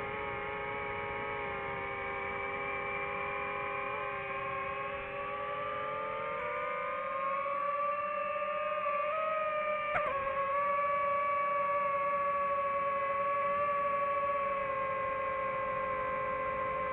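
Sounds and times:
drone propellers whining: 0:00.0 - 0:16.9.

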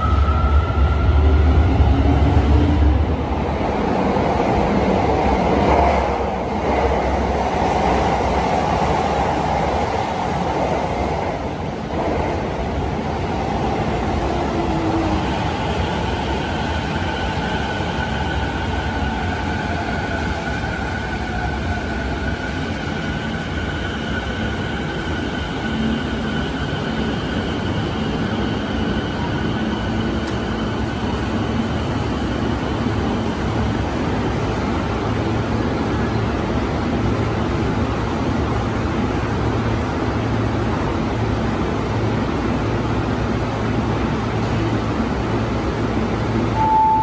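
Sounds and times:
train wheels rumbling on rails: 0:00.0 - 0:46.6
subway train slowing to a stop: 0:00.0 - 0:47.0
steady high whine: 0:46.6 - 0:47.0.

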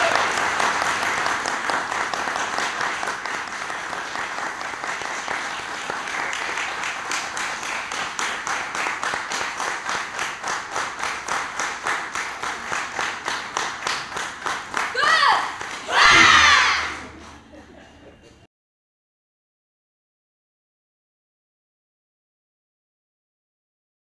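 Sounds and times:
audience applause: 0:00.0 - 0:17.5
rhythmic clapping in unison: 0:00.0 - 0:17.7.

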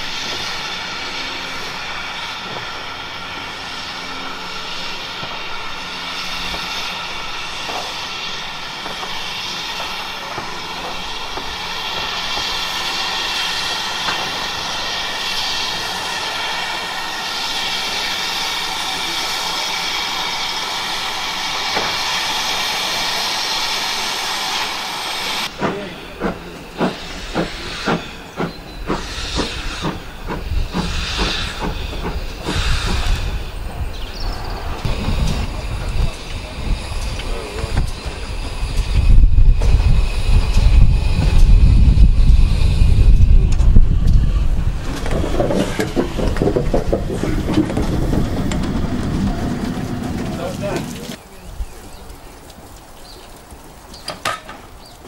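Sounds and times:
steam locomotive hissing: 0:00.0 - 0:52.1
locomotive exhaust beats: 0:00.0 - 0:52.5
drain cocks blowing steam: 0:00.0 - 0:55.0.

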